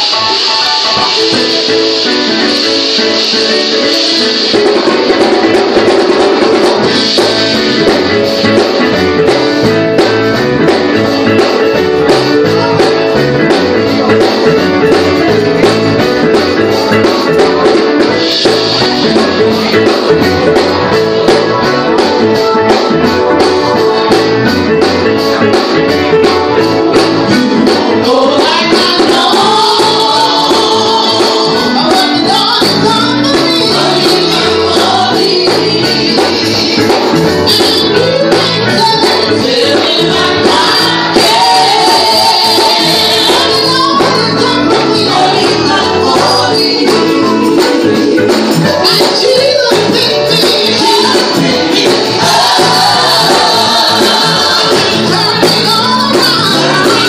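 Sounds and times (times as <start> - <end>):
band playing steady beat: 0.0 - 57.0
women's vocal group singing: 27.8 - 57.0.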